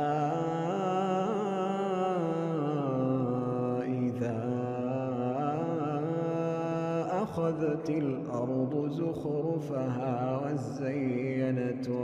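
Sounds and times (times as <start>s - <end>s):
man chanting melodically: 0.0s - 12.0s.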